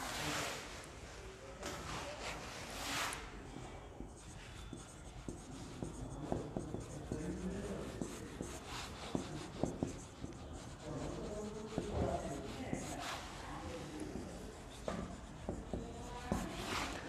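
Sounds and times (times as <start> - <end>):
marker squeaking on whiteboard: 4.0 - 13.0, 13.8 - 17.0.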